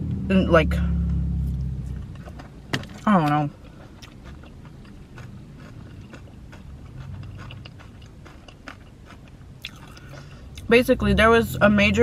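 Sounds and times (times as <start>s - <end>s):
chewing food: 3.2s - 10.7s.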